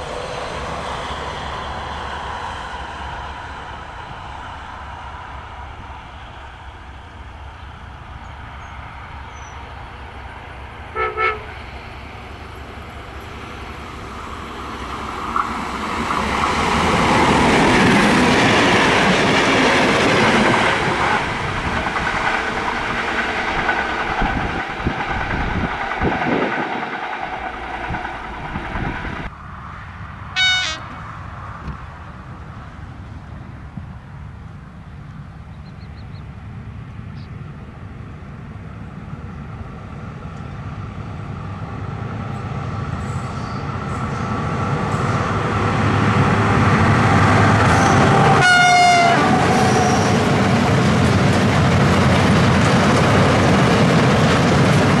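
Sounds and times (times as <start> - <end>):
locomotive horn toot: 10.9 - 11.6, 30.4 - 31.0, 47.6 - 50.3
train horn blasts: 10.9 - 11.6, 30.4 - 31.0, 47.5 - 50.3
train wheels clattering over rails: 14.4 - 29.3, 43.2 - 55.0.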